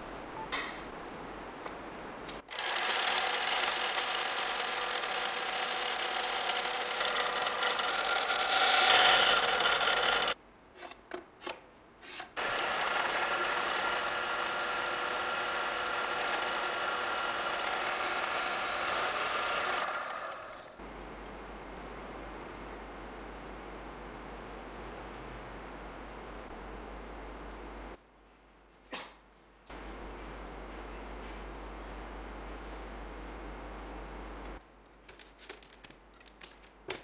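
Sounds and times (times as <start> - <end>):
drill press drilling steel: 2.5 - 10.4, 12.4 - 20.7.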